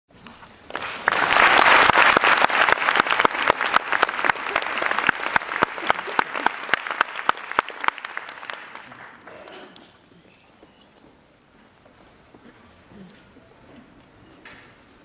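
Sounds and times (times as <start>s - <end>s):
audience applauding: 0.6s - 9.7s.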